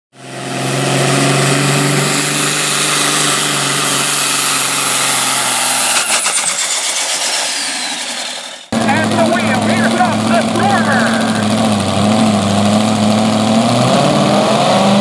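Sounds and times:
engine idling: 0:08.0 - 0:13.4.

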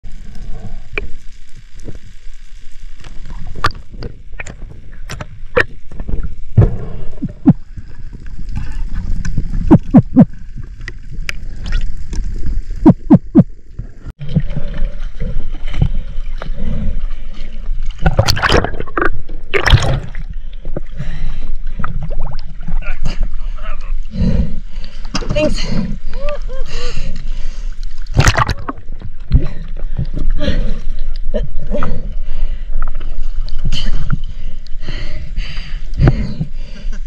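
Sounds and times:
muffled underwater rumble: 0:00.0 - 0:37.0
water sloshing and splashing: 0:03.0 - 0:23.6, 0:26.8 - 0:34.6.

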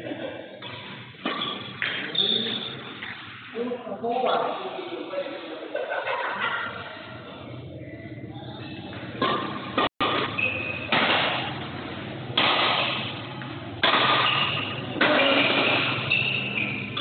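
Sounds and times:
rackets hitting shuttlecock: 0:00.6 - 0:03.2, 0:08.9 - 0:11.7, 0:12.3 - 0:17.0.

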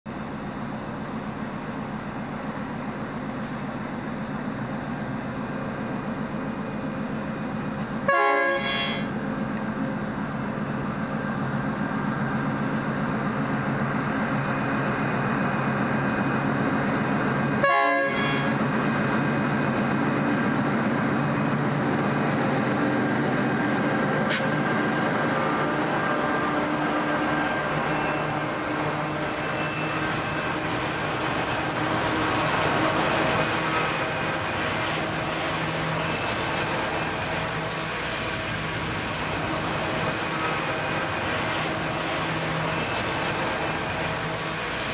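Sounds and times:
diesel locomotive engines droning: 0:00.1 - 0:44.9
train horn blasts: 0:08.1 - 0:09.1, 0:17.6 - 0:18.6.

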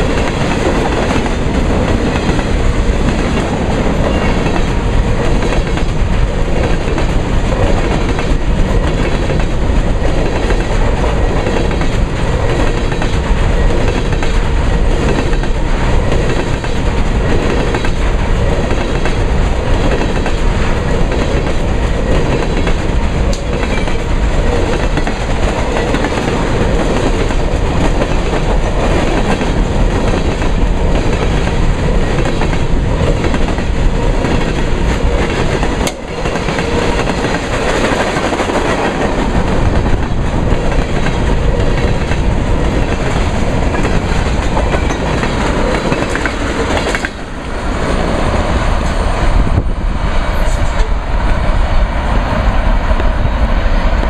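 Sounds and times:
wheels clacking on track: 0:00.0 - 0:49.7
steel wheels rumbling on rails: 0:00.0 - 0:54.0.

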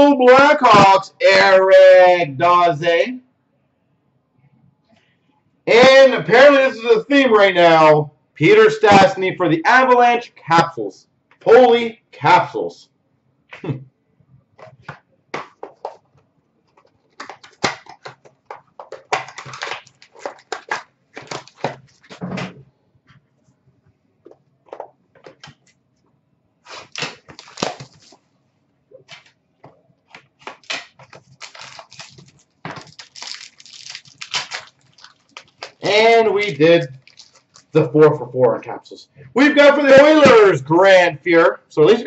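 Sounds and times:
cards and cardboard rustling: 0:14.6 - 0:22.2, 0:26.7 - 0:28.2, 0:29.0 - 0:37.8.

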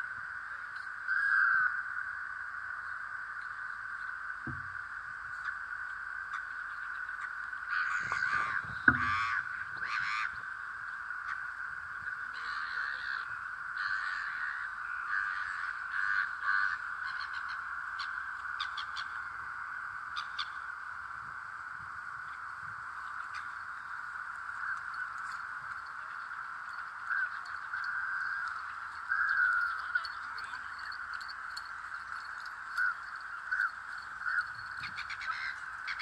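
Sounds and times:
crows cawing: 0:01.1 - 0:02.0, 0:06.3 - 0:10.5, 0:12.2 - 0:19.4, 0:20.1 - 0:20.7, 0:23.2 - 0:36.0.

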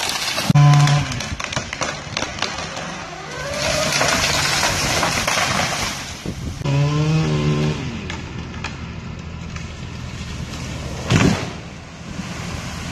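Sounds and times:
truck engine running: 0:02.0 - 0:12.9
tree crashing into water: 0:03.1 - 0:06.3.

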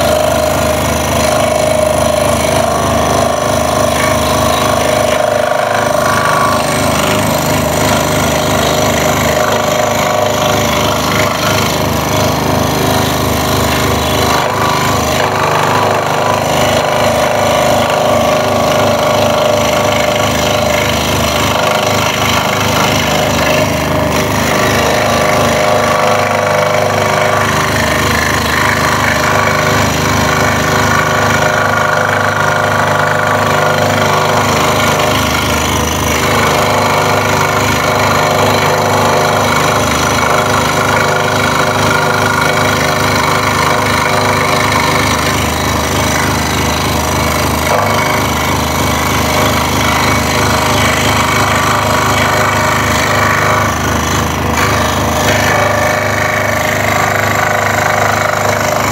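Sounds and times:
scroll saw cutting wood: 0:00.0 - 0:58.9.

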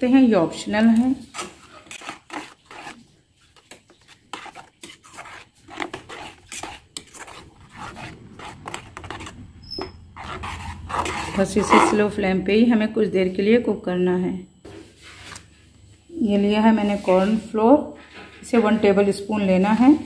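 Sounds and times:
metal spoon scraping a pan: 0:00.9 - 0:12.1.

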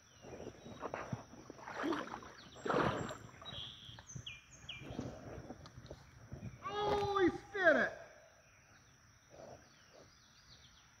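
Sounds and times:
water sloshing as someone wades: 0:00.3 - 0:06.0.

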